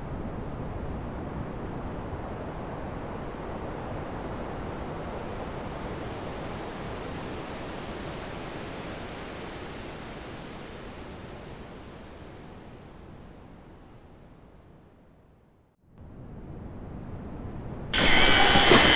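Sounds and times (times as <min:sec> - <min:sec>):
synthetic surf noise: 0:17.9 - 0:18.9.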